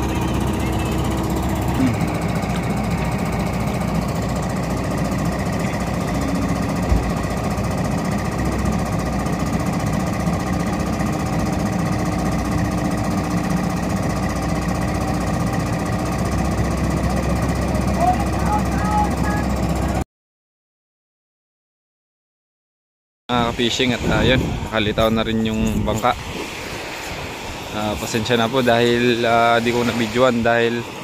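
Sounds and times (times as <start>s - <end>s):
excavator diesel engine clattering: 0.0s - 20.0s.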